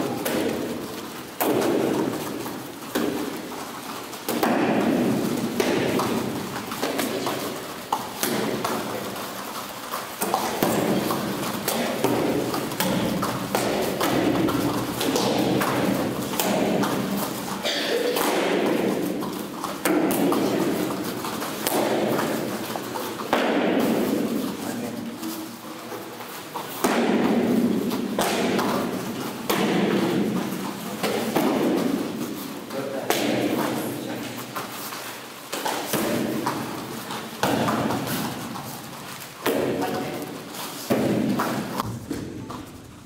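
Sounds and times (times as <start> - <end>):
bare feet thudding on mats: 0.0 - 43.0
hum of a busy hall: 0.0 - 43.0.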